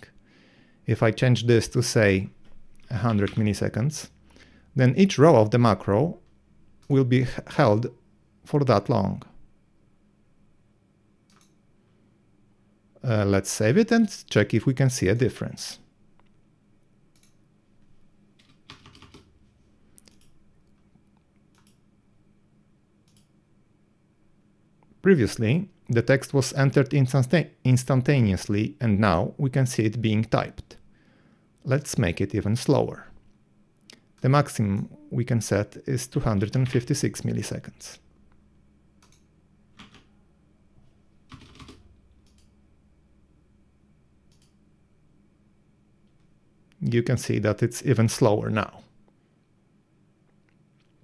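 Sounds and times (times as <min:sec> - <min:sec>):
computer mouse clicks: 0:11.3 - 0:11.6, 0:17.1 - 0:17.4, 0:20.0 - 0:20.8, 0:21.4 - 0:21.8, 0:23.0 - 0:23.4, 0:39.0 - 0:40.1, 0:41.3 - 0:42.6, 0:44.3 - 0:44.6.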